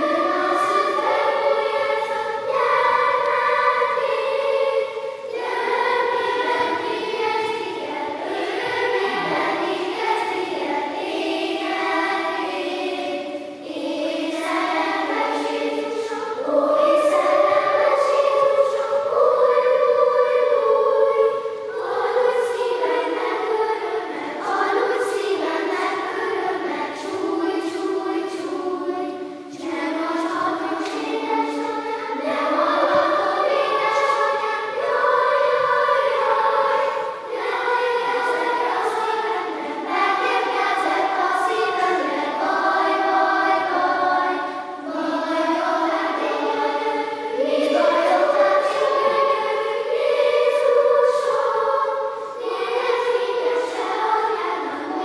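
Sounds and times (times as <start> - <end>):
children's choir singing: 0.0 - 55.0.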